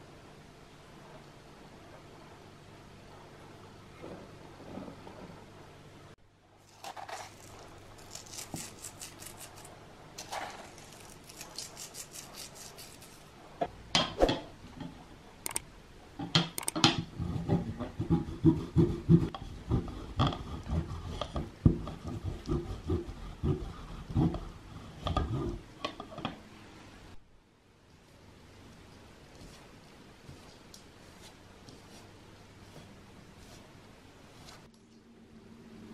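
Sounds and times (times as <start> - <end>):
flour rustling: 6.6 - 13.3
cheese rasping on grater: 6.7 - 13.3.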